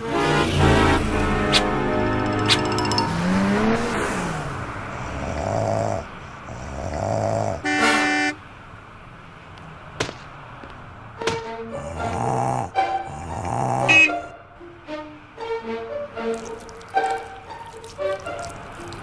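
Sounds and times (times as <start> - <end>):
cartoon snoring: 4.9 - 7.7, 11.7 - 14.2
vehicle horn toot: 7.6 - 8.4, 13.9 - 14.3.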